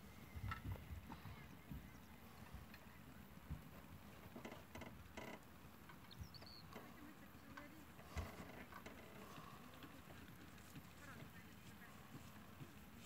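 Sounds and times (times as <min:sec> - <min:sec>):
horse hoofbeats on sand: 0:00.1 - 0:04.2, 0:07.8 - 0:13.0
bird chirping: 0:06.0 - 0:07.1.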